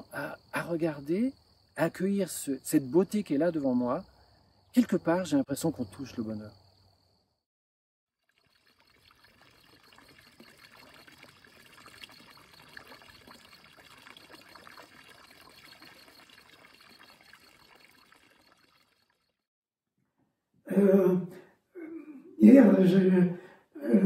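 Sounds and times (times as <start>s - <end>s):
water trickling into a trough: 8.1s - 19.5s.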